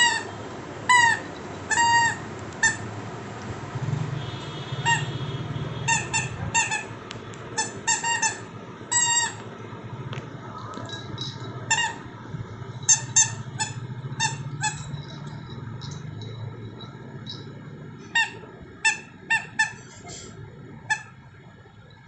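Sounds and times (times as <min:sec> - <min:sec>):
rubber squeaky toy squeaking: 0:00.0 - 0:02.9, 0:04.8 - 0:05.2, 0:05.9 - 0:09.5, 0:10.8 - 0:12.1, 0:12.8 - 0:17.4, 0:18.0 - 0:21.2.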